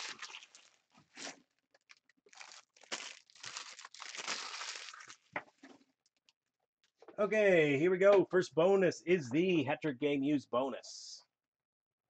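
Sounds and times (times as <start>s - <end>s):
wrappers crinkling: 0.0s - 5.4s.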